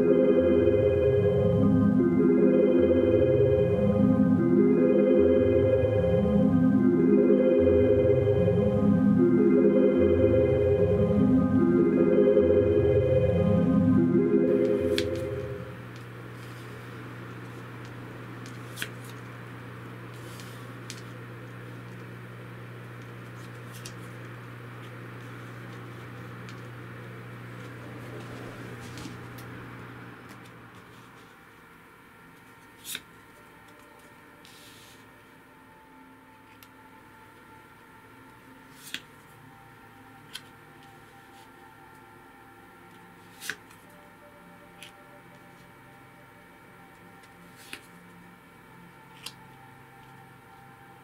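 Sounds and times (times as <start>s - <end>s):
faint steady tones: 0.0s - 18.6s, 33.2s - 51.0s
low electrical hum with hiss: 0.0s - 51.0s.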